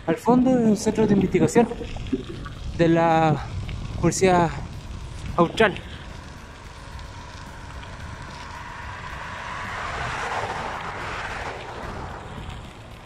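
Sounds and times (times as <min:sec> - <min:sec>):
steady low rumble: 0:00.0 - 0:13.0
vehicle passing by: 0:06.0 - 0:13.0.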